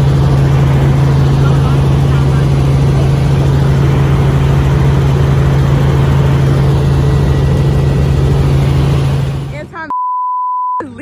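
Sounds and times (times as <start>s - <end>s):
helicopter engine and rotor drone: 0.0s - 9.9s.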